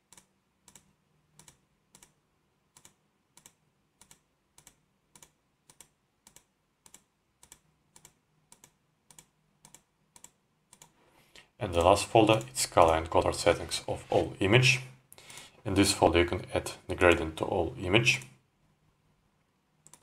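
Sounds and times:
computer mouse clicks: 0.0 - 11.0, 19.8 - 20.0.

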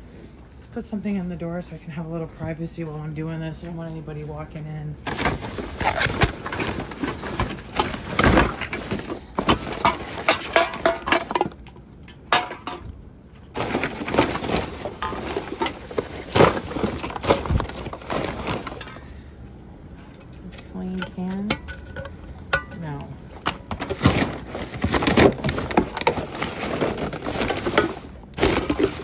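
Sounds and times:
plastic and cardboard rustling: 5.0 - 12.8, 13.4 - 19.2, 23.3 - 29.0
rummaging through rubbish bin: 5.0 - 19.2, 20.0 - 29.0.

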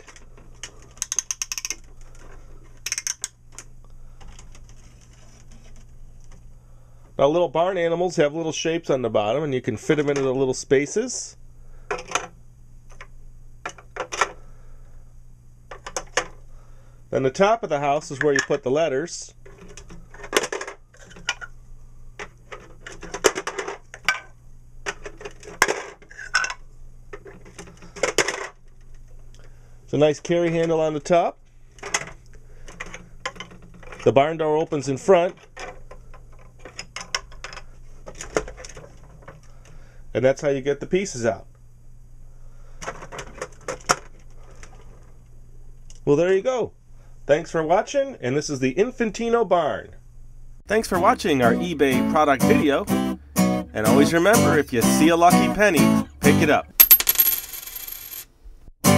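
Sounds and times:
toy clock hands ratcheting: 1.0 - 1.9, 2.8 - 3.4.

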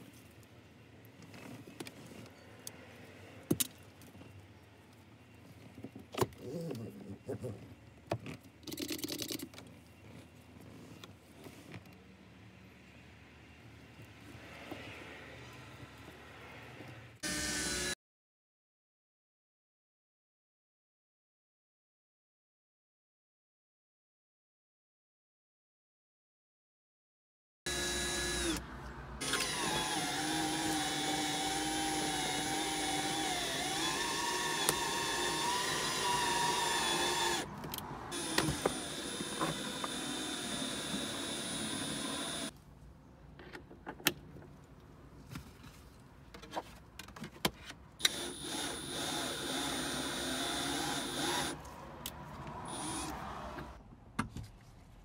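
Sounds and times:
cordless drill motor running: 17.2 - 18.0, 27.7 - 28.6, 29.2 - 37.5, 38.1 - 42.5, 48.0 - 51.6, 52.7 - 53.2.

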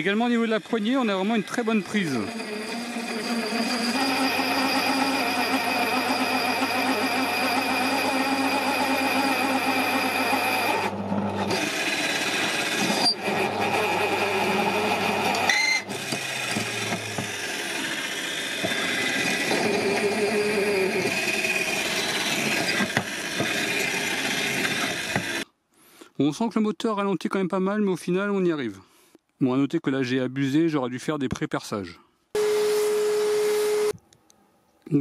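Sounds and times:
pillar drill drilling into steel: 0.0 - 25.4.

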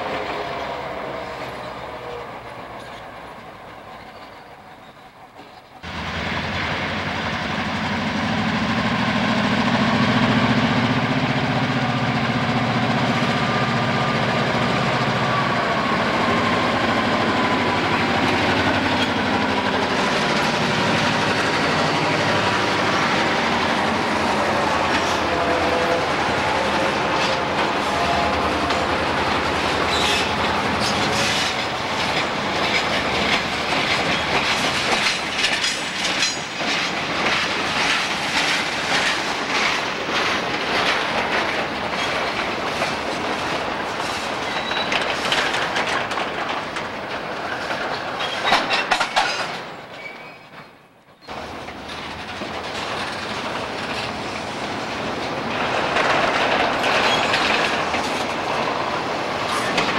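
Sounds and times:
diesel locomotive engines: 0.0 - 59.9
wheels clicking over rail joints: 16.2 - 59.9.

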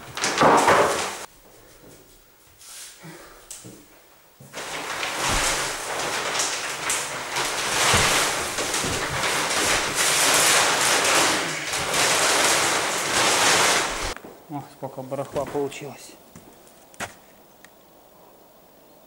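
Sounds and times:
plastic sheet rustling and crinkling: 0.0 - 1.3, 4.4 - 14.2.

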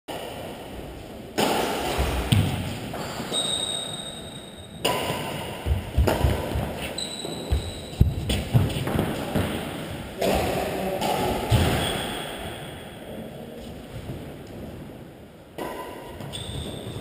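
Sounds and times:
rackets hitting shuttlecock: 1.4 - 12.4, 15.6 - 17.0.

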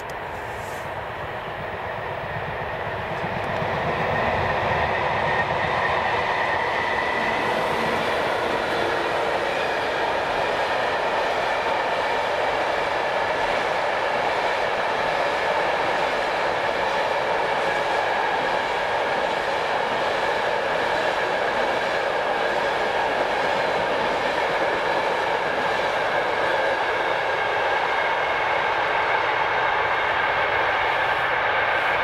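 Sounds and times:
train wheels rolling on rails: 0.0 - 32.0.

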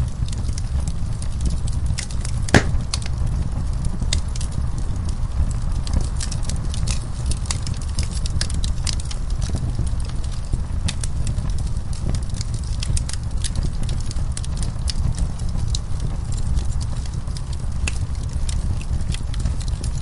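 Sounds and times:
low rumble of burning logs: 0.0 - 20.0
sharp pops and snaps of fire: 0.0 - 20.0
wood fire crackling: 0.0 - 20.0.

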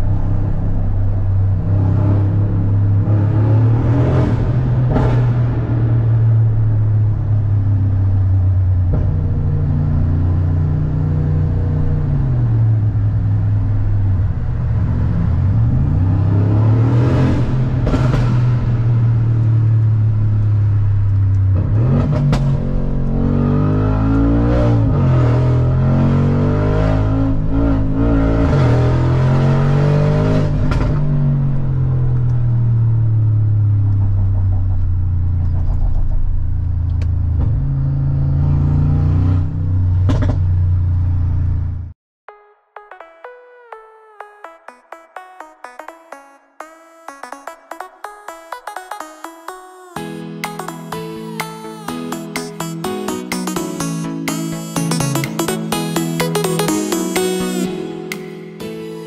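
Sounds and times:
car engine accelerating and revving: 0.0 - 41.9.

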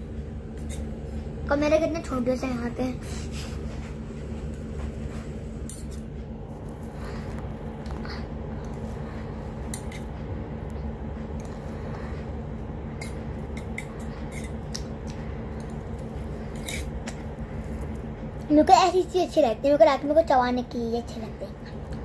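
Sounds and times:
low hum: 0.0 - 22.0.

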